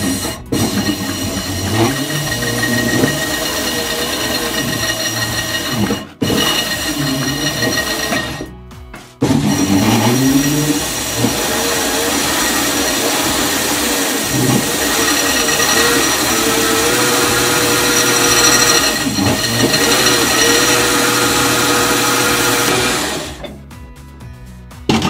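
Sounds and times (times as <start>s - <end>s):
leather skiving machine motor whine: 0.0s - 8.6s, 9.2s - 23.5s.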